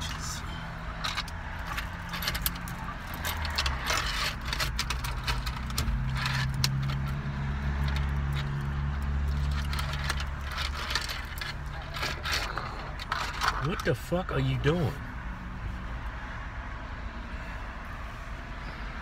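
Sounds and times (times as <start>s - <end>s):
car engine idling: 0.0s - 16.6s
small clicks and rustles: 1.0s - 13.9s.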